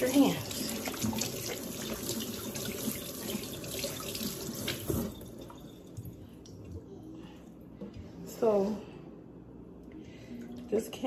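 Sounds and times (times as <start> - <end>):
faucet running over hands: 0.0 - 5.6.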